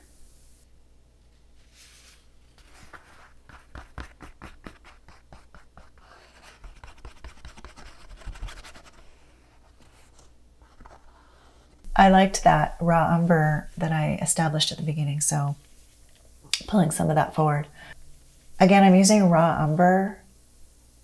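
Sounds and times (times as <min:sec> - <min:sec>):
paintbrush scratching across paper: 0:01.6 - 0:14.5.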